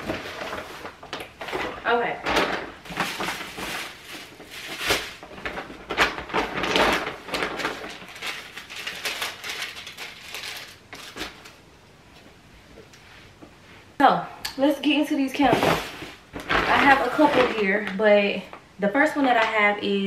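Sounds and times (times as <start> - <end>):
plastic bags rustling: 0.0 - 11.7, 15.4 - 18.6.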